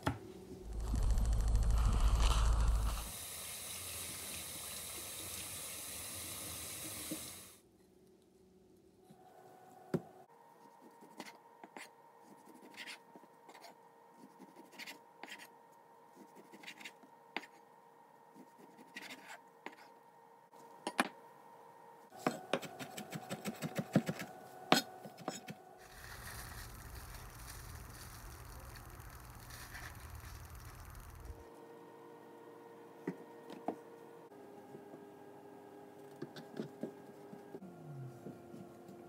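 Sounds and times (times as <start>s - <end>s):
steady hiss: 0.6s - 7.6s, 25.8s - 31.4s.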